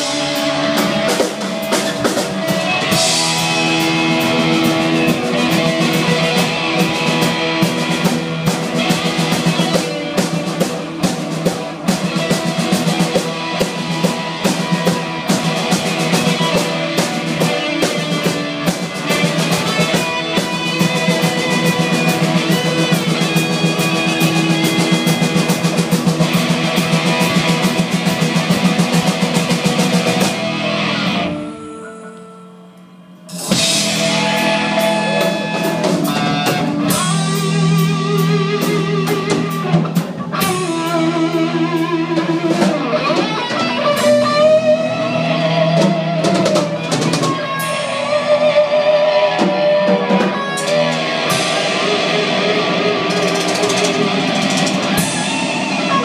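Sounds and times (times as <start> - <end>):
live rock band playing: 0.0 - 56.0.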